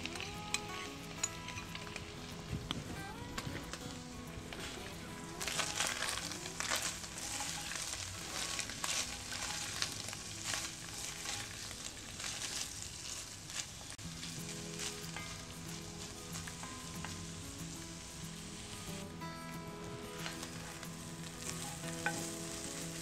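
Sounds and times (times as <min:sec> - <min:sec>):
meat and onions sizzling: 0:00.0 - 0:23.0
wooden spoon scraping a pot: 0:04.4 - 0:17.2.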